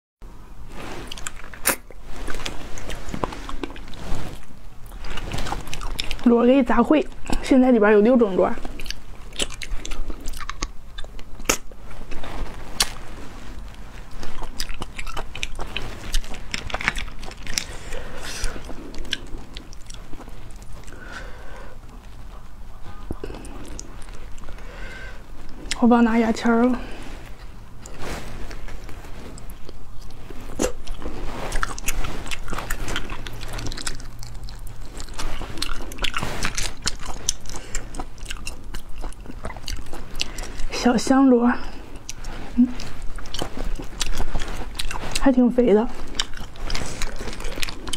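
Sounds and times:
chewing: 0.7s - 47.9s.

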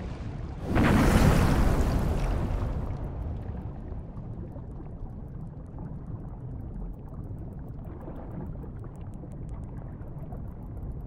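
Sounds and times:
underwater water wash: 0.0s - 11.0s
faint rapid clicks: 5.3s - 11.0s.

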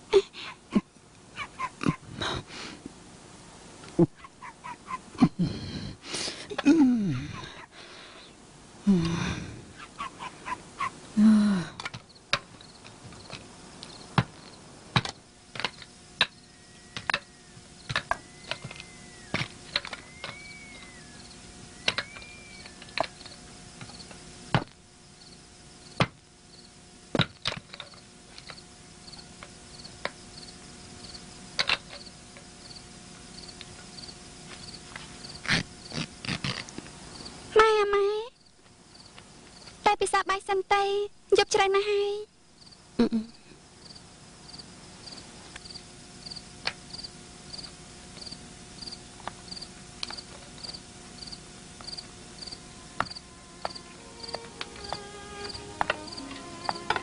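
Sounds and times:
crickets chirping: 7.1s - 37.6s, 38.2s - 39.9s, 42.3s - 57.0s
whistled chirps: 16.3s - 23.4s.

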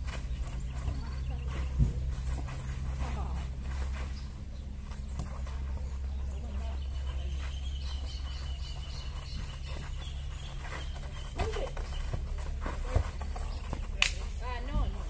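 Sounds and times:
faint distant calls: 0.0s - 15.0s
steady low hum: 0.0s - 15.0s
high bird chirp: 6.6s - 12.2s.

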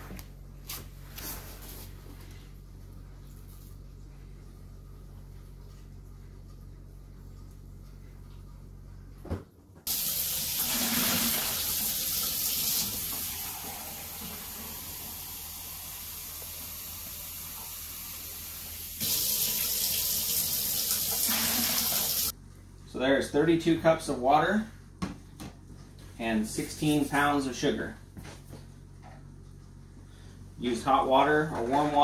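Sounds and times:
faucet water running into cup: 9.9s - 22.3s.

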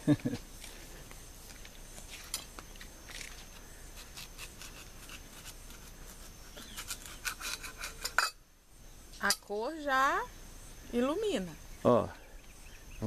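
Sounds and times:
knife scraping and clicking on glass: 6.8s - 8.4s.

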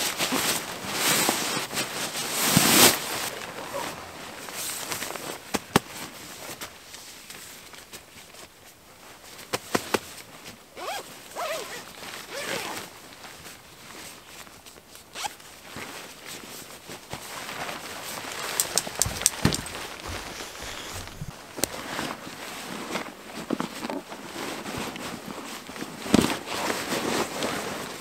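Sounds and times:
zipper being pulled: 10.8s - 12.9s, 18.6s - 21.4s
sharp clicks: 18.6s - 20.1s.

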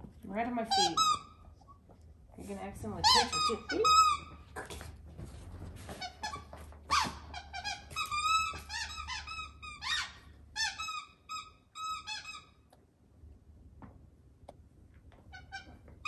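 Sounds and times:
squeaky toy squeaking: 0.7s - 1.4s, 3.0s - 4.4s, 6.0s - 12.6s.

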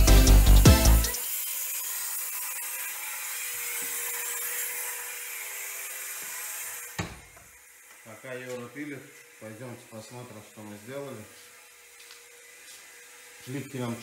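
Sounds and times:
music with heavy bass beat: 0.0s - 1.2s
angle grinder cutting tile: 0.0s - 14.0s.

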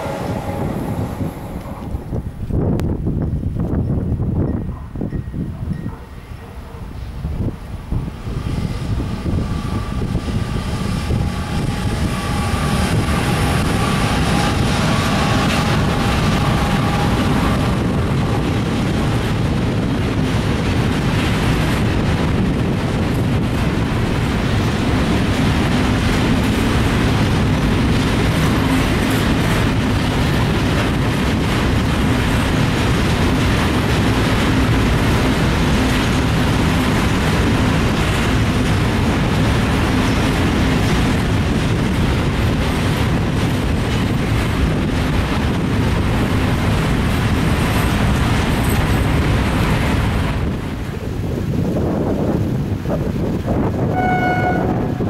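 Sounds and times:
freight train rumbling past: 0.0s - 55.0s
wheels clicking over rail joints: 11.1s - 51.2s.

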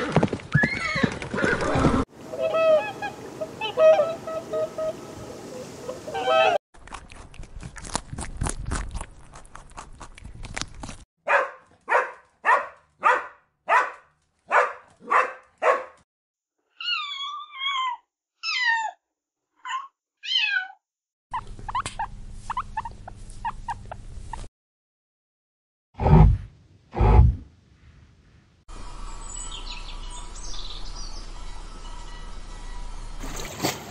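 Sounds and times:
wavering high-pitched calls: 2.3s - 6.6s
low hum: 26.1s - 33.6s.

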